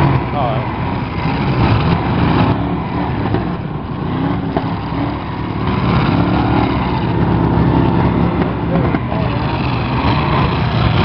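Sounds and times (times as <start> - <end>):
car engines revving: 0.0 - 11.0.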